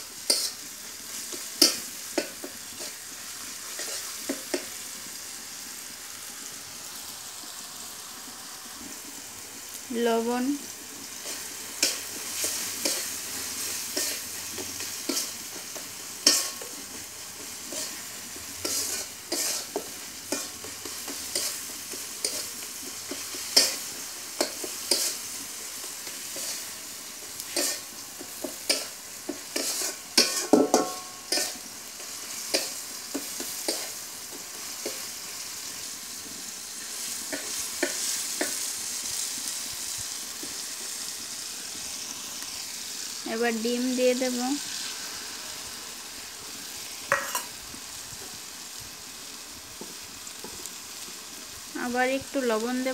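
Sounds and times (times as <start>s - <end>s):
food sizzling in oil: 0.0s - 52.9s
metal spatula scraping a wok: 0.2s - 4.8s, 11.2s - 35.1s, 47.1s - 47.6s.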